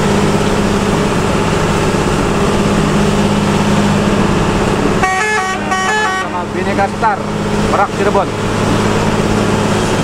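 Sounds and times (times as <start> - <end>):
bus engine drone: 0.0 - 10.0
tyres hissing on wet road: 0.0 - 10.0
multi-tone musical horn: 5.0 - 6.7.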